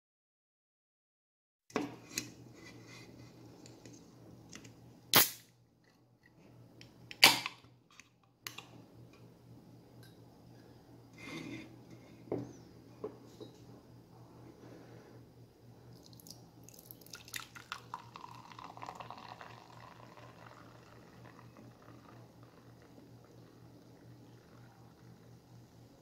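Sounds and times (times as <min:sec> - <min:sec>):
low steady hum: 0:01.7 - 0:26.0
soda can popping open: 0:05.1 - 0:05.5.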